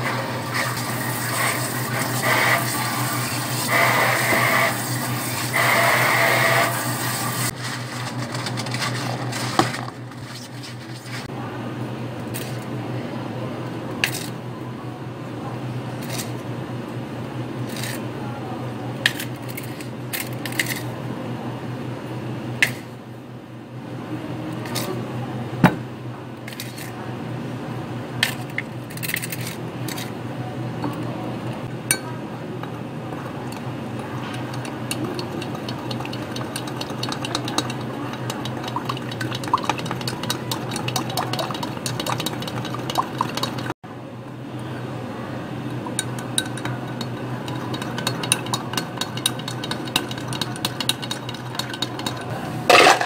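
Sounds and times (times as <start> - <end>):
metal spoon clinking on glass: 46.0 - 52.3.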